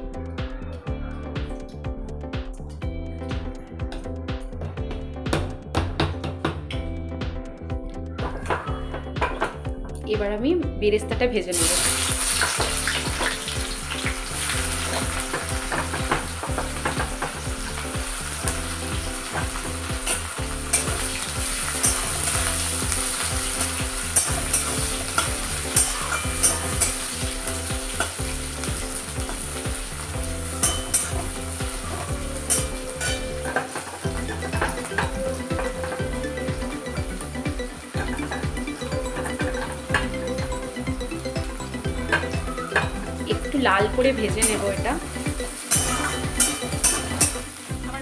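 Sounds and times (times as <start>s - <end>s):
onions sizzling in oil: 11.5s - 48.0s.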